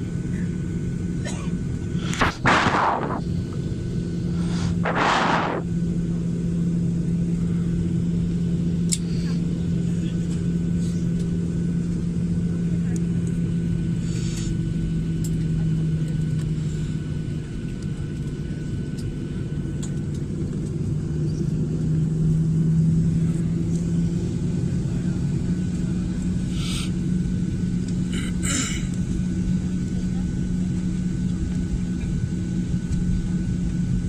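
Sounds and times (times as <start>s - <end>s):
airliner engines droning in cabin: 0.0s - 34.0s.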